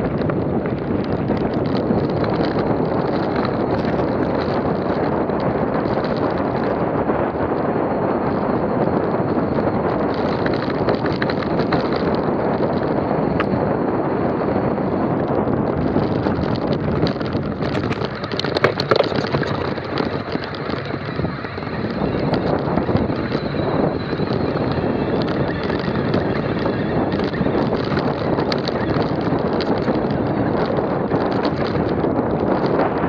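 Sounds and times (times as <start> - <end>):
stones and bike rattling: 0.0 - 33.0
wind rushing over microphone: 0.0 - 33.0
tyres crunching over loose rock: 9.4 - 13.6, 15.7 - 32.9.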